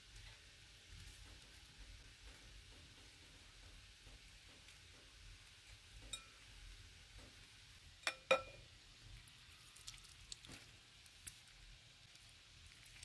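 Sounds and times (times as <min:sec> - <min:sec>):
knife clinking on glass bowl: 0:08.0 - 0:08.6.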